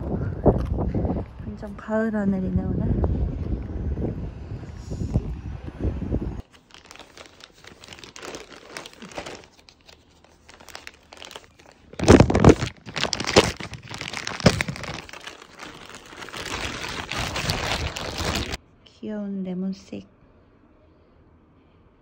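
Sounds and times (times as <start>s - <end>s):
plastic bag crinkling: 6.4s - 18.6s.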